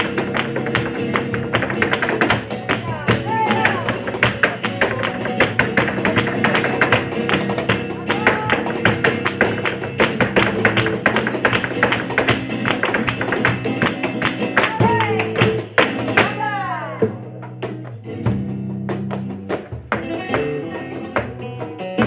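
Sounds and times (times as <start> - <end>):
handclaps: 0.0 - 16.4
acoustic guitar playing: 0.0 - 22.0
dancer's footwork strikes: 0.0 - 22.0.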